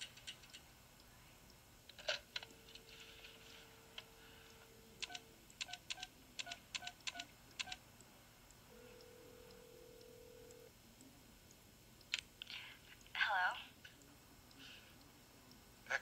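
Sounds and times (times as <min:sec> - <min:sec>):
keypad beeps: 0:05.0 - 0:07.8
telephone ringback tone: 0:08.7 - 0:10.7.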